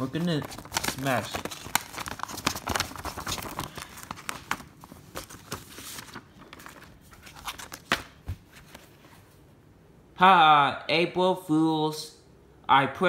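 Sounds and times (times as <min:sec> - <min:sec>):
plastic case and paper rustling: 0:00.0 - 0:09.4.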